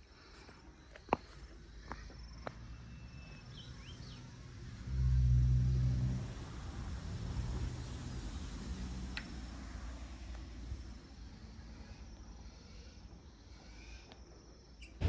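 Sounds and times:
bird chirping: 0.8 - 4.4
vehicle engine humming: 2.4 - 12.8.

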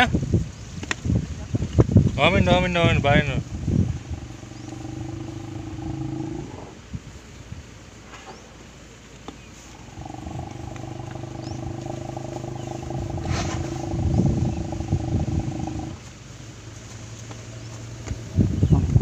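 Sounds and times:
elephant rumbling: 2.0 - 6.9, 9.6 - 19.0.

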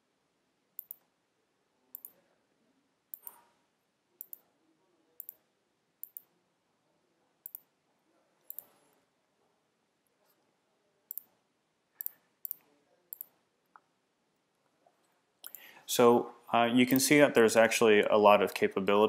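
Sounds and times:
computer mouse clicking: 0.8 - 1.1, 1.9 - 2.2, 3.1 - 3.5, 4.2 - 4.5, 5.2 - 5.4, 6.0 - 6.3, 7.4 - 7.7, 8.5 - 8.8, 11.1 - 11.3, 12.0 - 13.4, 15.4 - 15.7, 16.9 - 17.1.

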